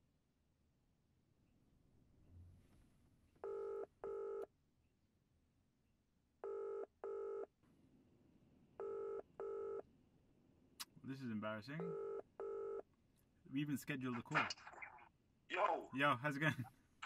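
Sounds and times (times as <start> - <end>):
phone ringing tone double beeps: 3.4 - 4.5, 6.4 - 7.5, 8.8 - 9.8, 11.8 - 12.8.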